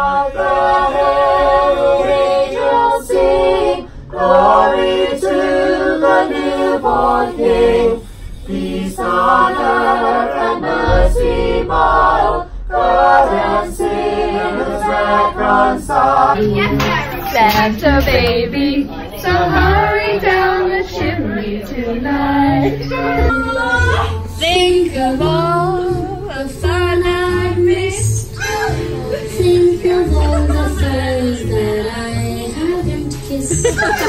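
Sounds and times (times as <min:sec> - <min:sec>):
person singing unaccompanied: 0:13.0 - 0:34.0.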